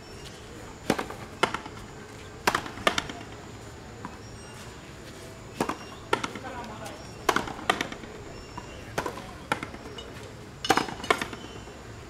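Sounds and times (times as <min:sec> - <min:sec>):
rubber ball struck by rackets: 0:07.3 - 0:08.0.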